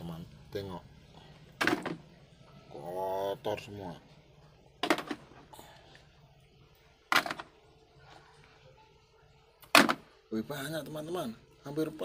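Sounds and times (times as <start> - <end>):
plastic toys dropped into bucket: 1.6 - 2.0, 4.8 - 5.3, 7.1 - 7.5, 9.6 - 10.1.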